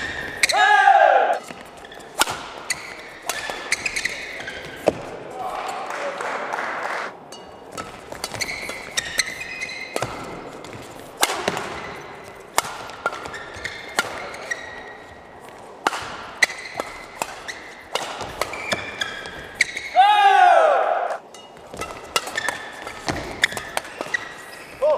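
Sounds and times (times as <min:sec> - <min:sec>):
racket striking shuttlecock: 0:01.3 - 0:05.1, 0:07.3 - 0:14.7, 0:15.8 - 0:19.9, 0:21.1 - 0:24.5
shoe soles squeaking on court: 0:01.4 - 0:05.1, 0:07.3 - 0:11.1, 0:11.7 - 0:12.4, 0:13.0 - 0:15.5, 0:16.4 - 0:20.0, 0:21.2 - 0:24.9.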